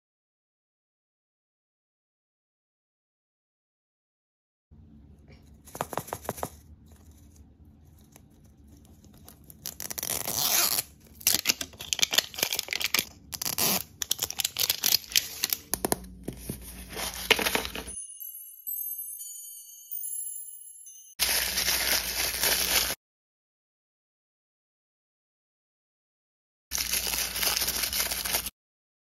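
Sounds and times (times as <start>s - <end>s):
paper wrapper being folded: 5.6s - 18.0s, 21.2s - 23.0s, 26.7s - 28.5s
plastic shrink wrap crinkling: 8.0s - 17.9s, 21.2s - 23.0s, 26.7s - 28.5s
chiming jingle: 17.7s - 22.1s.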